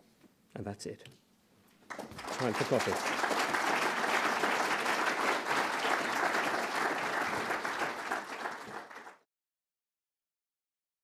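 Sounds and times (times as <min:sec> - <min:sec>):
audience applauding: 0:01.9 - 0:09.2.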